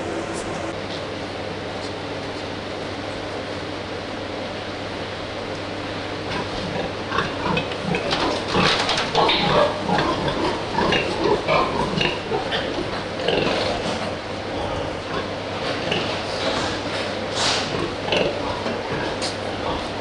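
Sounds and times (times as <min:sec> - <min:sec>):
steady low hum: 0:00.0 - 0:20.0
pigs grunting: 0:06.2 - 0:20.0.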